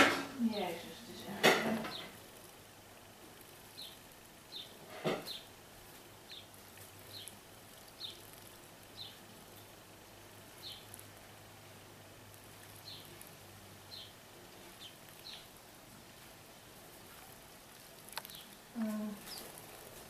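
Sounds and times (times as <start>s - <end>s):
sparrows chirping: 0.4s - 2.7s, 3.4s - 9.8s, 10.4s - 15.6s, 18.1s - 20.0s.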